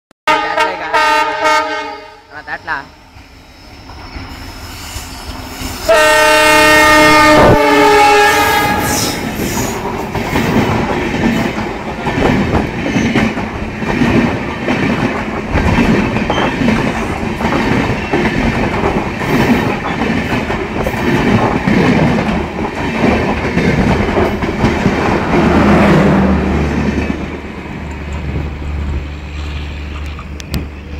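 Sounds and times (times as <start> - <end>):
train horn blast: 0.3 - 2.3, 5.9 - 9.3
train rushing past: 0.3 - 30.9.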